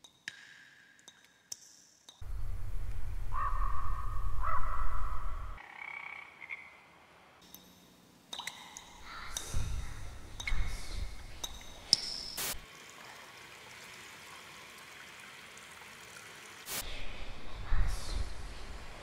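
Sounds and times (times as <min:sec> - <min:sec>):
water trickling: 0:08.4 - 0:16.8.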